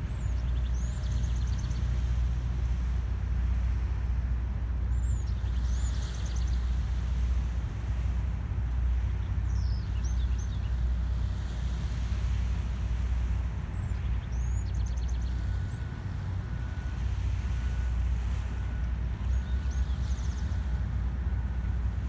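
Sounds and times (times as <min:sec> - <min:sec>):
birds chirping: 0:00.0 - 0:02.1
diesel engine rumbling: 0:00.0 - 0:22.0.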